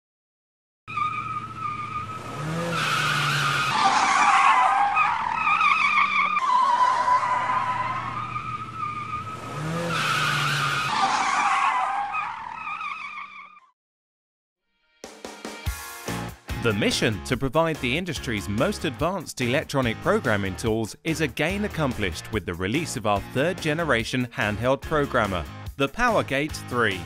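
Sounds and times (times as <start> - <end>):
car engine revving: 0.9 - 12.8
tyres squealing: 0.9 - 13.6.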